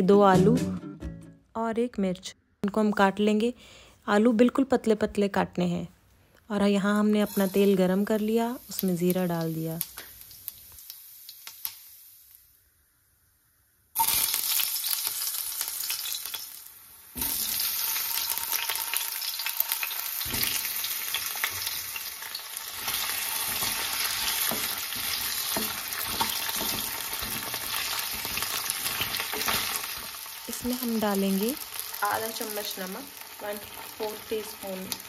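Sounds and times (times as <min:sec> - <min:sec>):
seeds and potatoes frying in oil: 0:06.7 - 0:35.0
wooden spatula scraping and knocking: 0:23.4 - 0:29.8.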